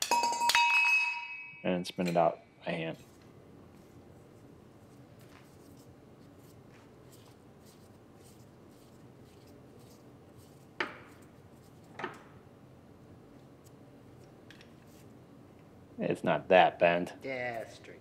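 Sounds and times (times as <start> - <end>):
sharp metal clinks: 0.0 - 2.2.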